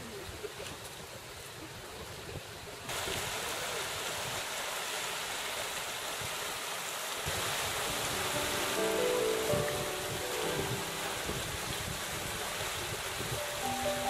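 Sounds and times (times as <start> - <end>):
river rushing over rocks: 2.8 - 14.0.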